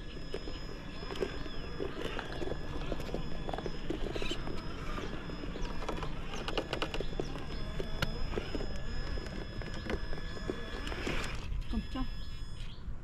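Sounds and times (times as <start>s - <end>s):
tyres crunching over stones: 0.0s - 11.6s.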